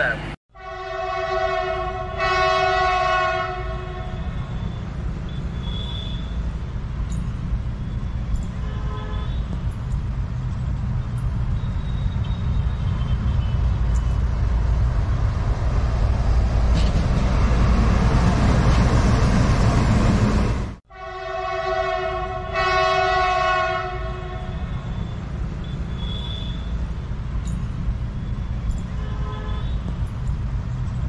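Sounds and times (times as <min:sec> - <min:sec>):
diesel locomotive engine rumble: 0:00.0 - 0:31.0
locomotive horn blast: 0:00.5 - 0:06.3, 0:08.6 - 0:09.4, 0:20.9 - 0:26.7, 0:29.0 - 0:29.9.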